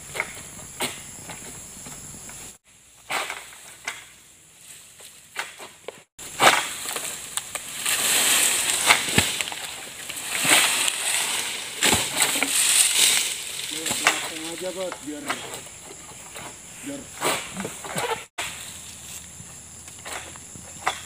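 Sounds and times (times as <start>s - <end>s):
fronds rustling: 0.0s - 20.8s
insects buzzing faintly: 0.0s - 21.0s
sickle cutting palm stalks: 3.0s - 21.0s
sharp cracks: 6.3s - 15.2s.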